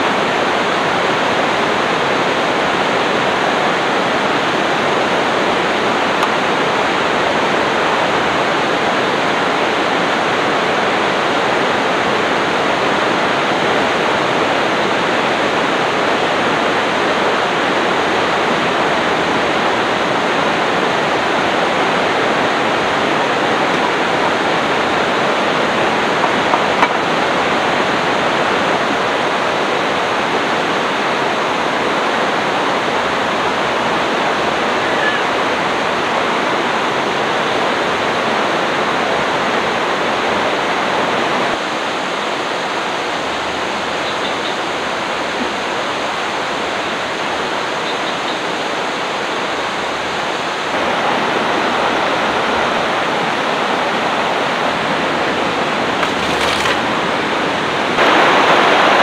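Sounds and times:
river rushing: 0.0 - 59.0.

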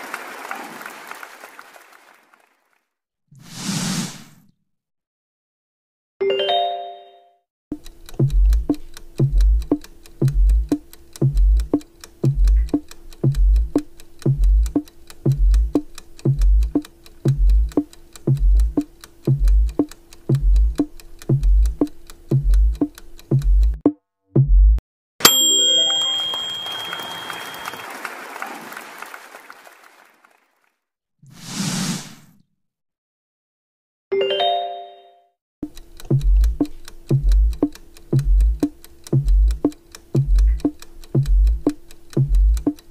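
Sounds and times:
countdown timer ticking: 7.7 - 27.4, 35.6 - 42.9
held note: 25.2 - 28.0
short chime: 25.2 - 28.1.

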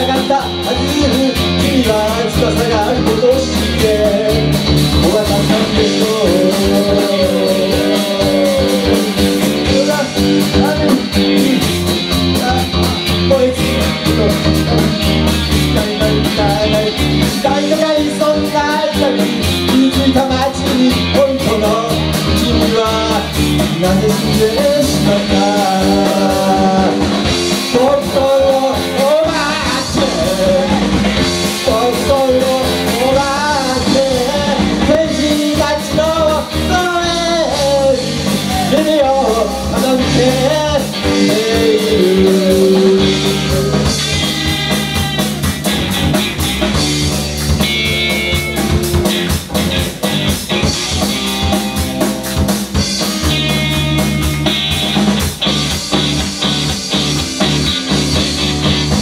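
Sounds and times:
person singing: 0.0 - 45.8
live rock band playing: 0.0 - 59.0.

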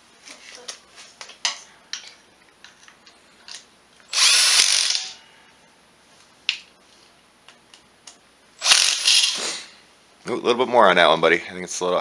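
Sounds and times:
cordless power driver running: 4.1 - 5.2, 8.6 - 9.5.

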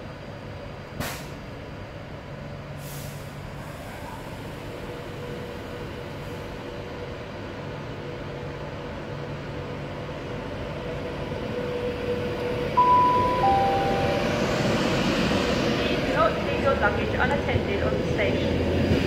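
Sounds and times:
electric train hum: 0.0 - 19.0
rumble of train wheels: 0.0 - 19.0
two-note chime: 12.8 - 14.8.

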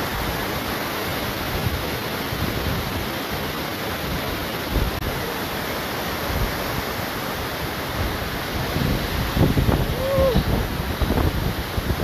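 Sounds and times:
wind buffeting microphone: 7.7 - 12.0.

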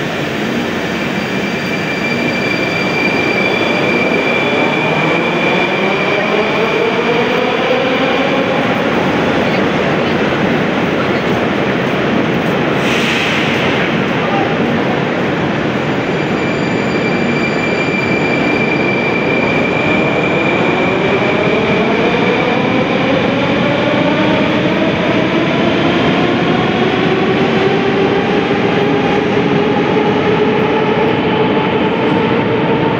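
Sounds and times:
metro train running noise: 0.0 - 32.9.

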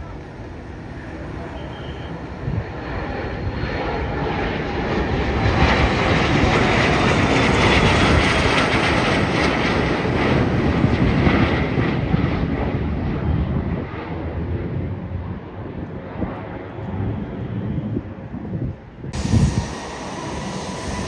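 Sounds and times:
jet plane passing overhead: 0.0 - 21.0
high whine sliding down: 19.2 - 21.0.

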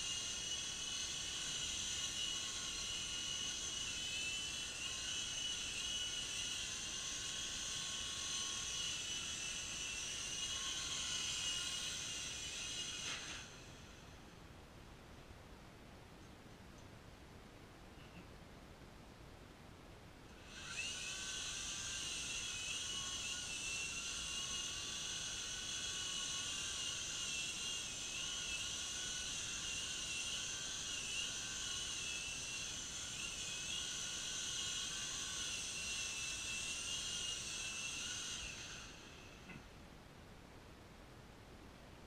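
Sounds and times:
toy helicopter motor whining: 0.0 - 14.2, 20.4 - 39.5.

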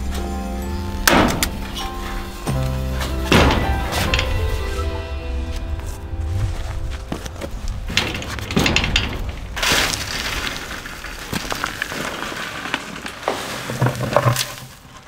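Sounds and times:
soil and stones pouring: 6.2 - 15.0
rocks knocking: 6.3 - 14.8.

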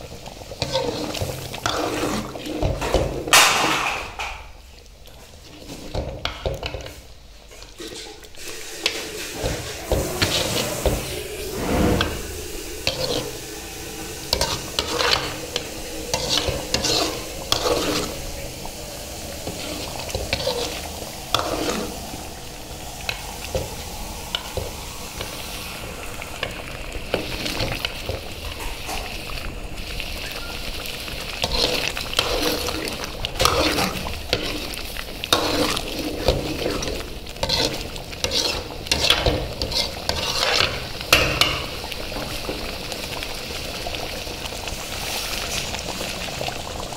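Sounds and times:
gravy sizzling: 0.0 - 46.9
spoon scraping metal pan: 7.6 - 13.5, 14.3 - 18.3, 19.4 - 22.0, 31.4 - 41.7.

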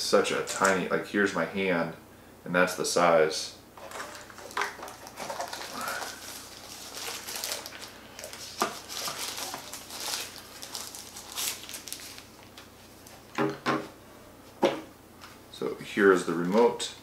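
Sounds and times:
plastic wrapping crinkling: 3.8 - 13.4.

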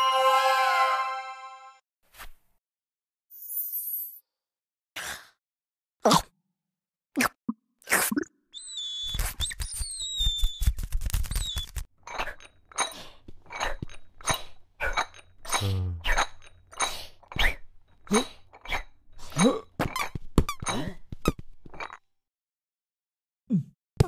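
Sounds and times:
short squeaky sounds: 8.6 - 11.9.

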